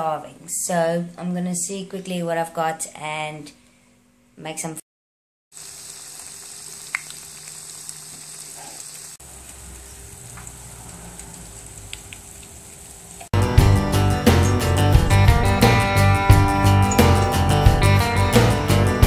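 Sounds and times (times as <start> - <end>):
food frying in hot oil: 5.5 - 13.3
pot bubbling with low rumble: 5.6 - 13.3.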